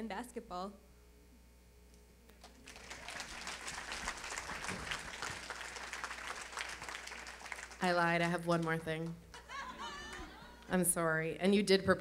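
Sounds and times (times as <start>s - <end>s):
audience applauding: 2.4s - 10.6s.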